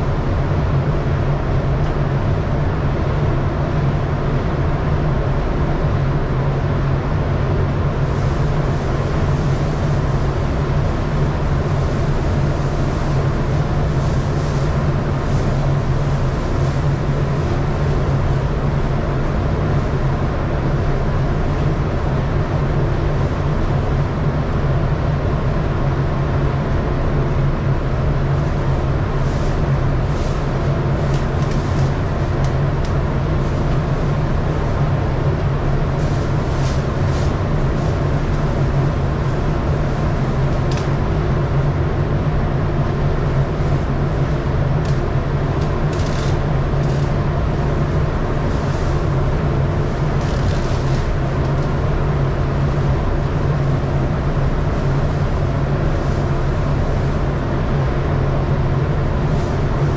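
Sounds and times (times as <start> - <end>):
ventilation fan humming: 0.0 - 59.9.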